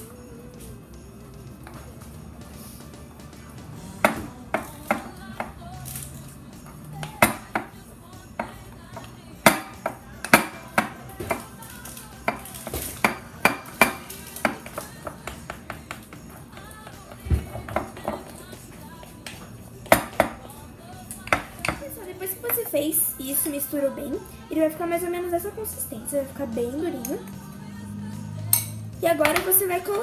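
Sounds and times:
background music: 0:00.0 - 0:30.0
spoon clinking against bowl: 0:28.5 - 0:30.0.

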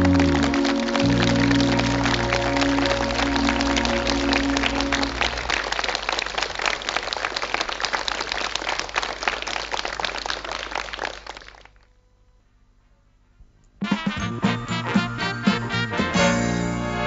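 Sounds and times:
ballad accompaniment held notes: 0:00.0 - 0:05.5, 0:13.8 - 0:17.0
audience applause: 0:00.0 - 0:11.8.

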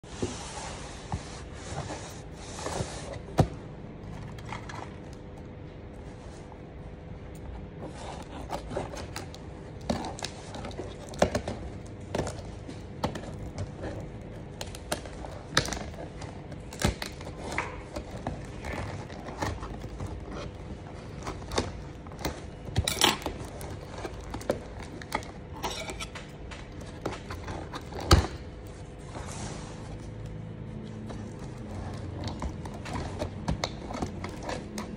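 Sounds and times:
scissors cutting cardboard: 0:07.8 - 0:34.9.

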